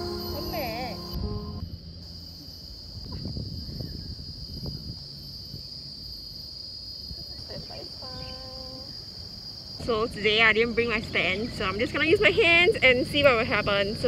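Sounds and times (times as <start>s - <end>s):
insects droning: 0.0s - 14.0s
wind rumble on microphone: 2.8s - 6.4s, 10.1s - 14.0s.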